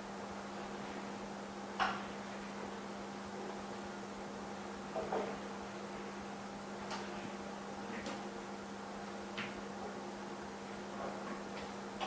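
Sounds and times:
electrical hum: 0.0s - 12.0s.

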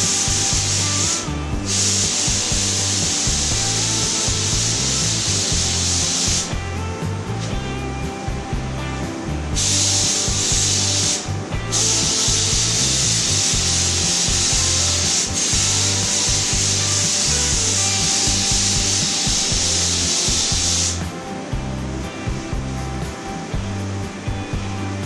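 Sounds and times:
paint spray gun hissing: 0.0s - 8.0s, 8.6s - 21.5s.

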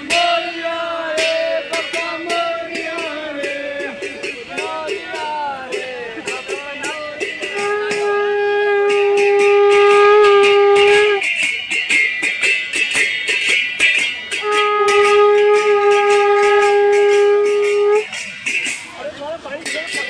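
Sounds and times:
percussion clattering: 0.0s - 20.0s
conch shell blown: 6.4s - 11.5s, 14.3s - 18.6s.

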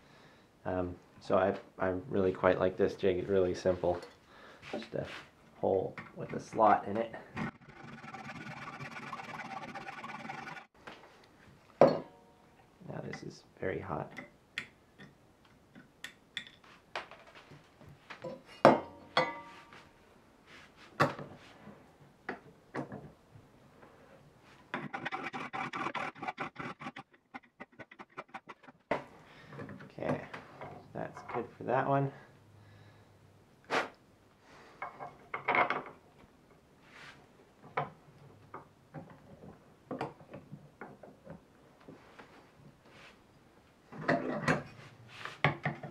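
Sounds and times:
file scraping: 7.4s - 10.7s, 24.8s - 28.8s.

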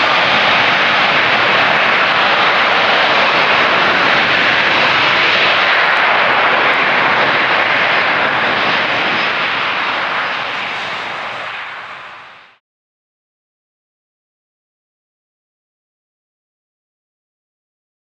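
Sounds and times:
jet engines rushing: 0.0s - 12.6s.

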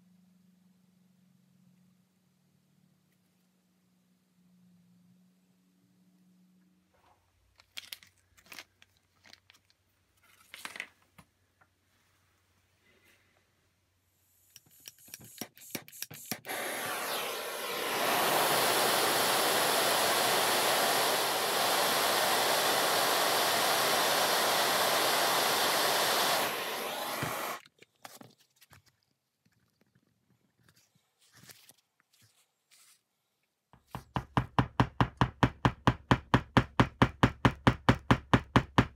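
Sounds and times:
gas torch hissing: 15.6s - 27.6s.

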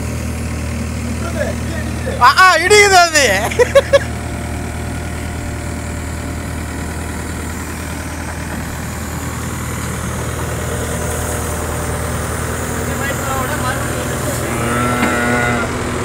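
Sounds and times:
diesel engine running: 0.0s - 16.0s
hydraulic arm hum: 3.6s - 16.0s.

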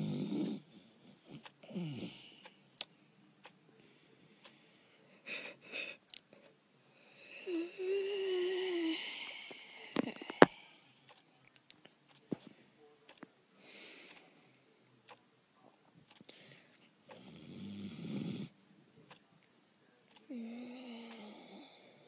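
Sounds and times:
person snoring and wheezing: 0.0s - 2.5s, 7.4s - 10.6s, 20.3s - 22.0s.

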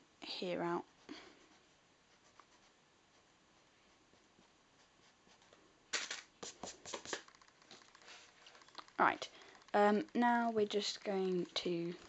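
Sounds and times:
brushing strokes: 0.8s - 8.8s
eraser rubbing on paper: 6.4s - 7.3s.

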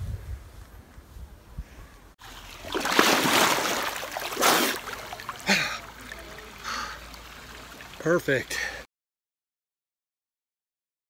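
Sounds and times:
river water splashing: 2.2s - 8.8s.

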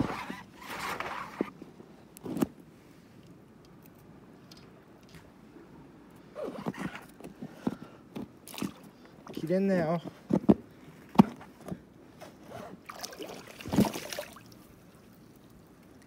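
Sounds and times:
waterproof clothing rustling: 0.0s - 1.6s, 6.2s - 16.0s.

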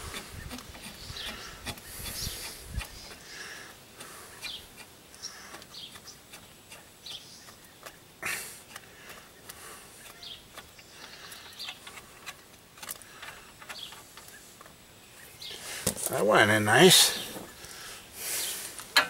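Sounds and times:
birds chirping faintly: 0.0s - 19.0s
metallic clicks and scrapes of bearing: 0.1s - 3.3s, 4.0s - 8.0s, 8.6s - 14.8s.

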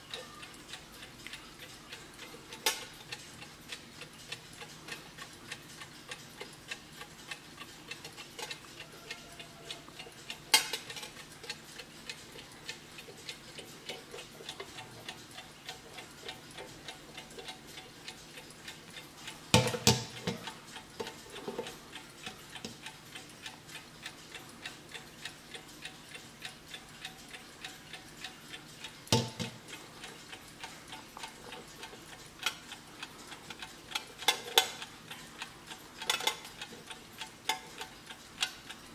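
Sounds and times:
alarm clock ticking: 0.0s - 38.9s.

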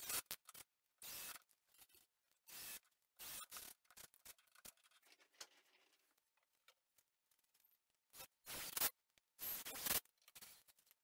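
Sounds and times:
cordless drill driving screws: 1.0s - 1.4s, 2.5s - 3.7s.

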